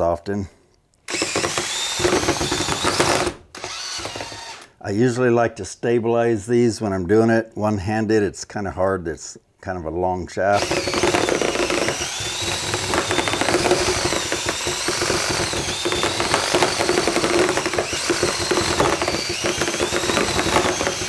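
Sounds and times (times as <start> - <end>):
cordless drill motor whine: 1.1 - 4.7, 10.6 - 21.0.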